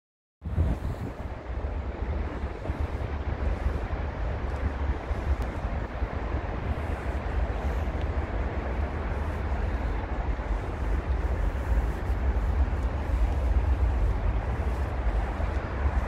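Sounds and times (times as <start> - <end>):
wind buffeting microphone: 0.4 - 16.0.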